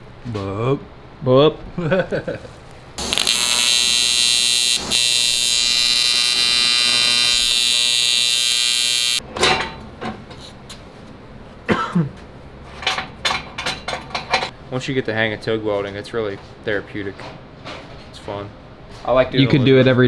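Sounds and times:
welding arc buzzing: 2.9s - 9.2s.

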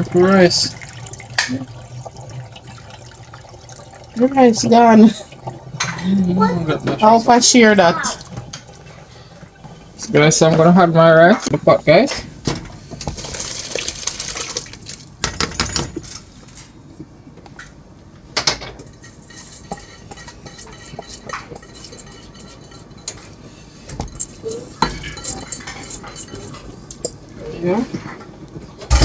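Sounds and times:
rice pouring into pot: 0.0s - 5.7s, 13.1s - 15.1s.

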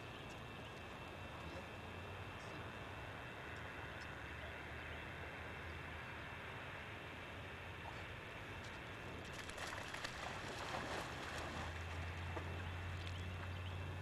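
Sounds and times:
steady low hum: 0.0s - 14.0s
dog splashing in water: 9.3s - 12.6s
sharp splashes: 9.3s - 13.2s.

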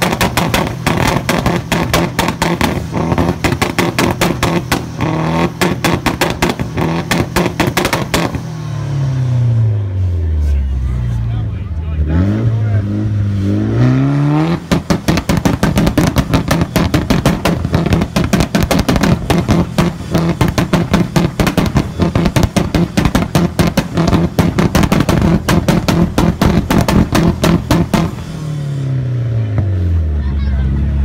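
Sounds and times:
exhaust pops and bangs: 0.0s - 8.5s, 14.3s - 28.4s
car engine revving high: 0.0s - 10.6s, 11.4s - 31.0s.

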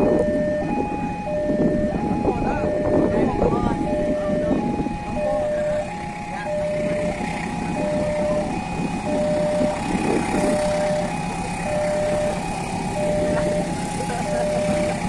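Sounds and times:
traffic rumble: 0.0s - 15.0s
two-tone crossing alarm: 0.0s - 15.0s.

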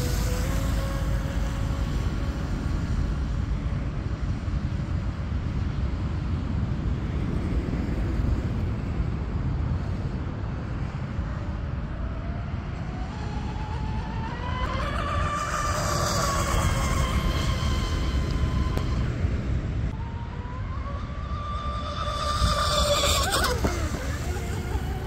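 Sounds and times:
electric motors whining: 0.0s - 3.9s, 12.1s - 25.0s
wind rumble on microphone: 0.0s - 25.0s.

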